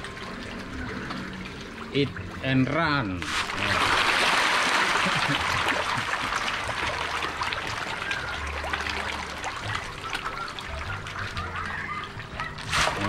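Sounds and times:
trickling water: 0.0 - 13.0
fish splashing at water surface: 3.2 - 13.0.

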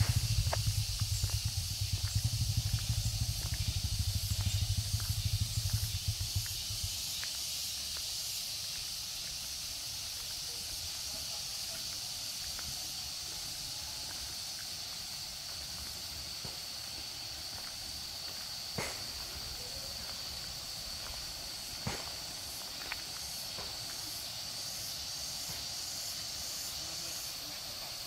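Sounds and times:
low pulsing rumble: 0.0 - 7.3
high-pitched insect drone: 0.0 - 28.0.

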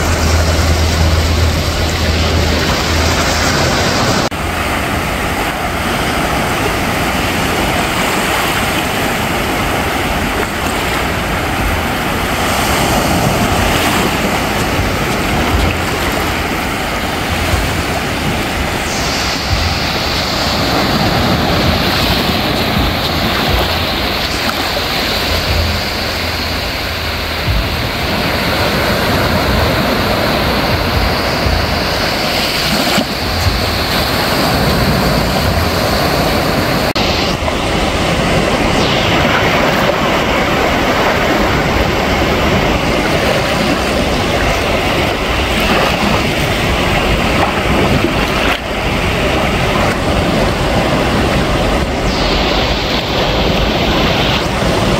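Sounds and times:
low uneven rumble: 0.0 - 7.7
waves lapping on shore: 0.0 - 54.9.

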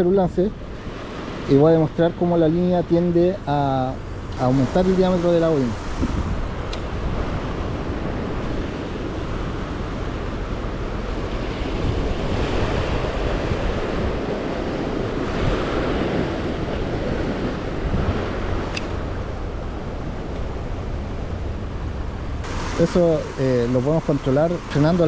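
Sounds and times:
wind on microphone: 0.0 - 25.0
sea waves washing against rocks: 0.4 - 25.0
sharp click: 6.7 - 6.9, 18.7 - 19.0.

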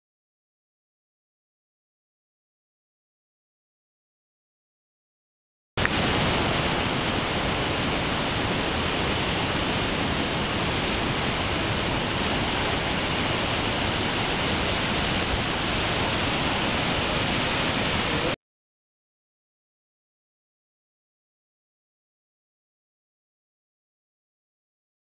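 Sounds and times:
waterfall rushing: 5.8 - 18.4.

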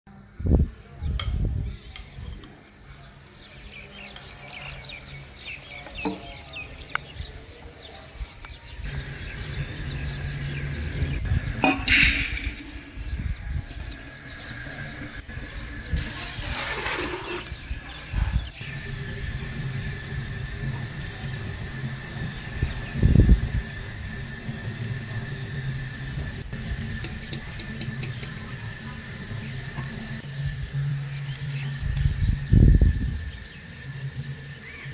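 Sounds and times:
birds chirping: 0.8 - 34.9
low steady hum: 8.8 - 34.9
sudden loud sound: 11.2 - 13.4.

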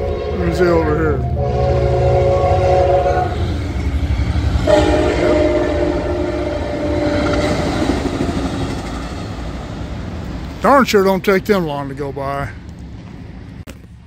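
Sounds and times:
train horn: 0.0 - 3.6, 4.6 - 7.7
train wheels rumbling on rail: 0.0 - 14.0.

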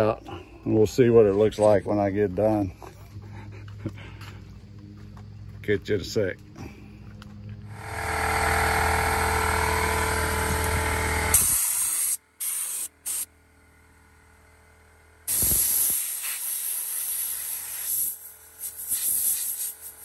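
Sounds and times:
steady mechanical hum: 0.0 - 20.0
air blow gun hissing: 11.3 - 13.3, 15.3 - 20.0.

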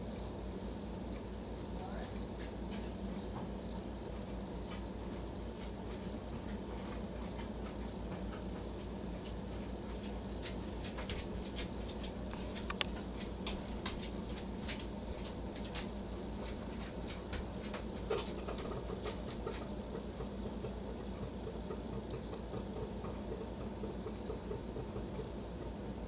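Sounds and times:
woodpecker pecking wood: 9.2 - 25.4.

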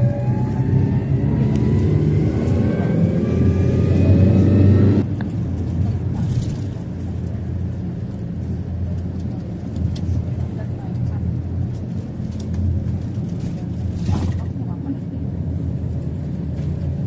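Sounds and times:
car engine accelerating: 0.0 - 5.3
road rumble inside car: 0.0 - 17.0.

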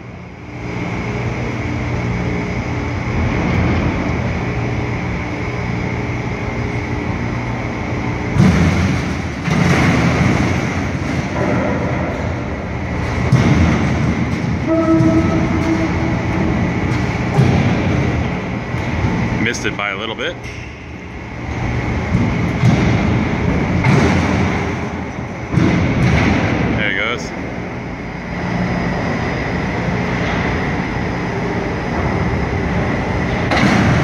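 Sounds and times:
crane machinery running: 0.0 - 34.0
low hum: 0.0 - 34.0
brief higher tone: 14.7 - 16.2.

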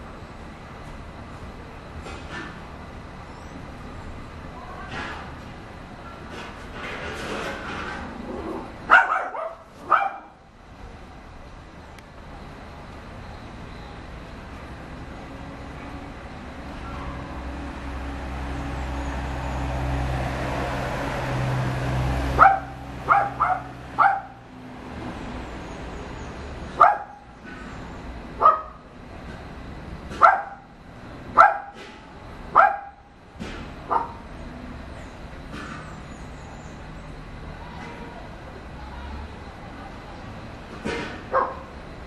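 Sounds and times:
dog barking: 8.9 - 10.4, 22.4 - 24.4, 26.8 - 27.3, 28.4 - 28.8, 30.2 - 30.7, 31.4 - 31.8, 32.5 - 33.1, 33.9 - 34.2, 41.3 - 41.7.

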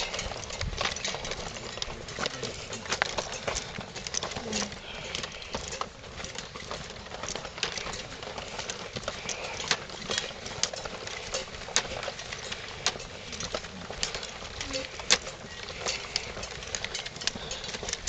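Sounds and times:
footsteps on woodland path: 0.0 - 18.0
gear clicking and rattling: 0.0 - 18.0.

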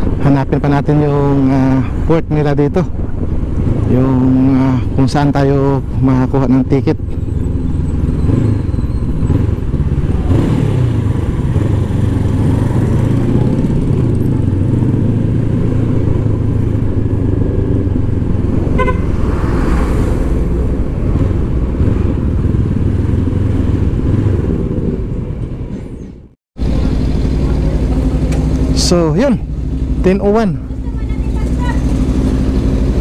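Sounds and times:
motorcycle engine running: 6.6 - 19.2, 21.0 - 25.2, 26.6 - 33.0
vehicle horn toot: 18.7 - 19.2.

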